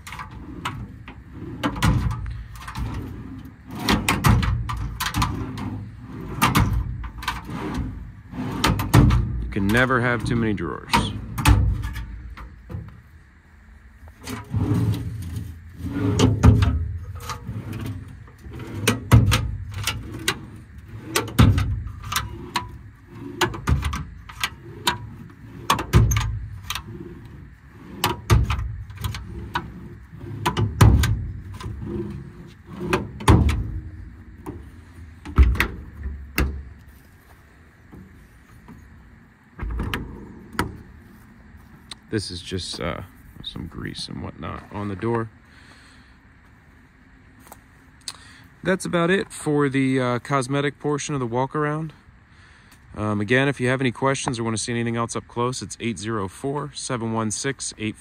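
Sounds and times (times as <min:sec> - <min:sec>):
drawers rumbling: 0:00.0 - 0:12.9, 0:14.2 - 0:36.9, 0:39.6 - 0:41.0.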